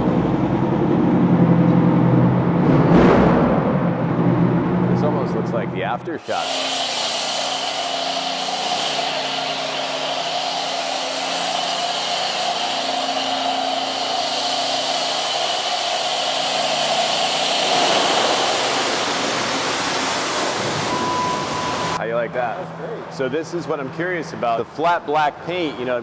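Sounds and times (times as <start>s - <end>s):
pressure washer spraying water: 6.2s - 22.0s.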